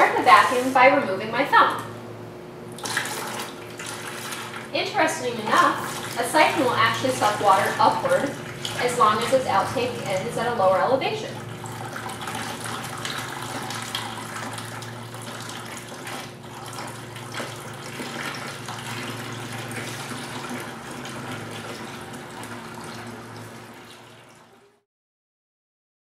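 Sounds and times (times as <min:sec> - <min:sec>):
water pouring into a plastic bucket: 0:02.8 - 0:04.7, 0:11.4 - 0:24.8.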